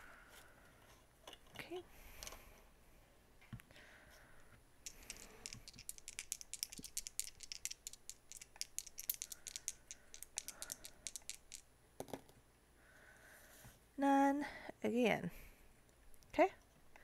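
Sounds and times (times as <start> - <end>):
dice shaken in hand: 4.8 - 11.7.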